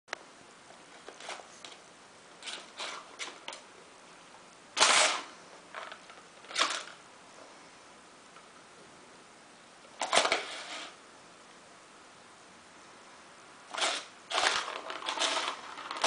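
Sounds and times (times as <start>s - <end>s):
plastic toy clacks and rattles: 13.7s - 16.0s.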